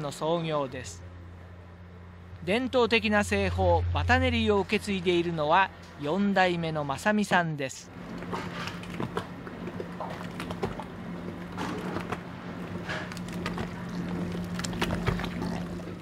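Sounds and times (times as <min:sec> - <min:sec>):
machine humming: 0:01.0 - 0:06.0
thick paste slapping: 0:13.1 - 0:16.0.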